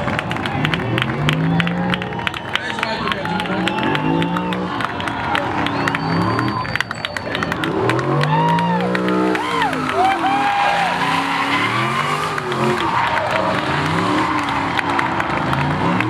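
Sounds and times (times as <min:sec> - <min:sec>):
car engine revving: 0:00.0 - 0:16.0
tyres squealing: 0:05.4 - 0:13.4.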